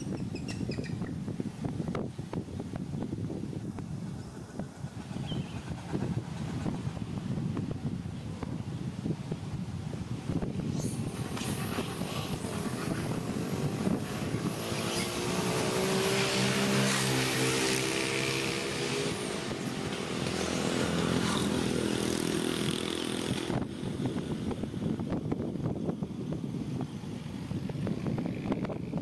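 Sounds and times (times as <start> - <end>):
passing vehicle engine drone: 10.4 - 25.4.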